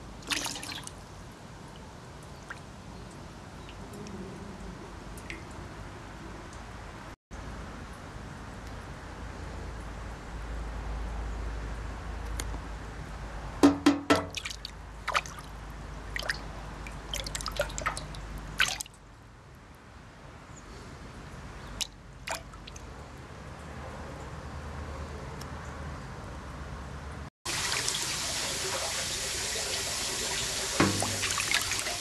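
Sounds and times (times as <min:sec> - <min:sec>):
fish splashing in a tub: 0:00.2 - 0:01.0, 0:14.2 - 0:18.9, 0:21.8 - 0:22.8, 0:27.5 - 0:32.0.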